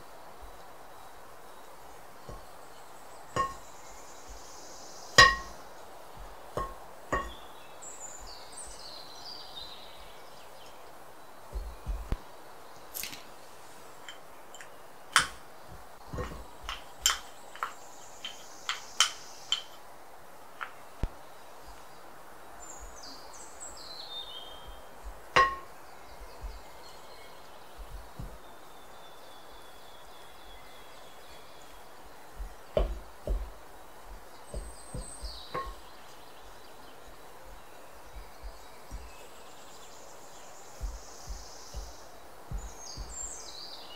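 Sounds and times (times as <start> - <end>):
steady low hiss: 0.0 - 43.9
wooden spoon knocking glass bowl: 3.4 - 3.6, 5.2 - 5.6, 6.6 - 7.4, 16.1 - 19.7, 25.3 - 25.7, 32.8 - 33.5, 34.5 - 35.8.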